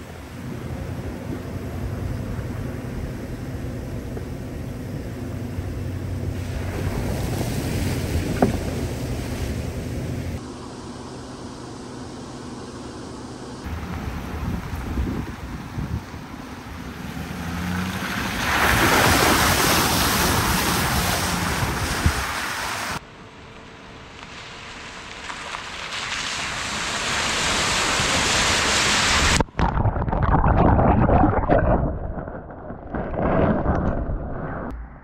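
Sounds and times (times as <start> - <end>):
pickup truck engine and tyres: 0.0 - 29.6
wind buffeting microphone: 14.0 - 16.4.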